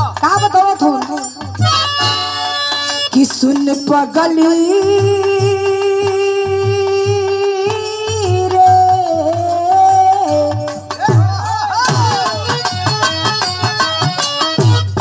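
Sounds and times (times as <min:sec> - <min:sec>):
steady drum beat: 0:00.0 - 0:15.0
woman singing folk song: 0:03.1 - 0:10.8.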